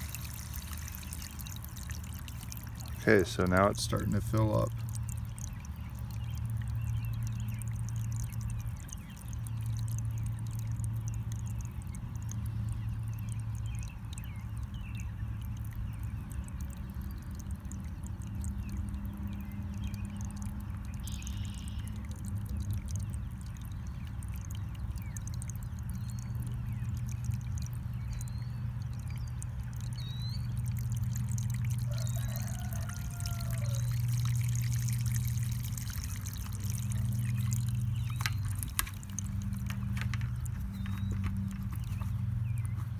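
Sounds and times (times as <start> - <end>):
water pouring and trickling: 0.0 - 42.9
low hum: 32.8 - 42.9.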